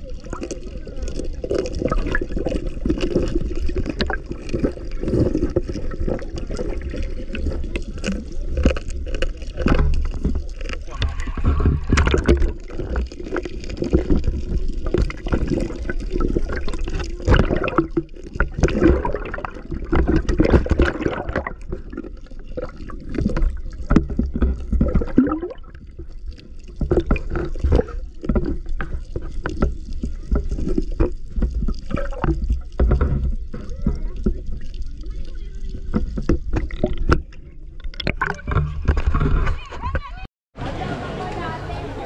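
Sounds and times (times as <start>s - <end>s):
muffled underwater water gurgling: 0.0s - 40.2s
knocks and thumps: 9.6s - 13.1s, 35.9s - 40.2s.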